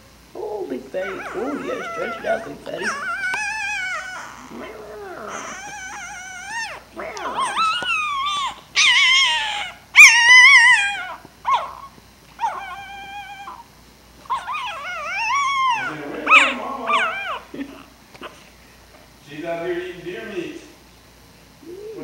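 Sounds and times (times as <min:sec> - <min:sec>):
puppies whimpering and whining: 0:00.9 - 0:13.7, 0:14.3 - 0:17.6.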